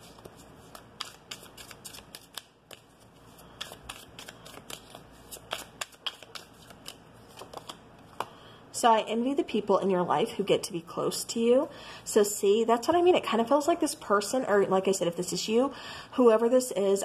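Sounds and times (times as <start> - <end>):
cards being shuffled: 0.0 - 8.3.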